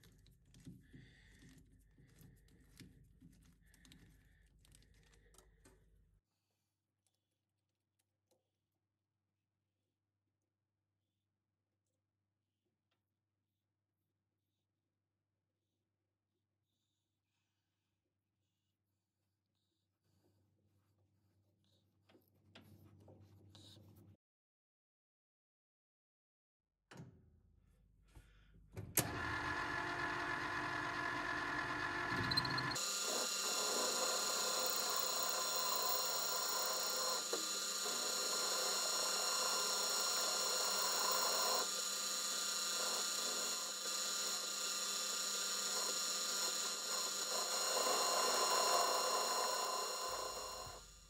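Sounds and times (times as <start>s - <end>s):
click: 29.0s - 29.2s, 32.2s - 32.8s
lathe motor whining: 29.0s - 51.0s.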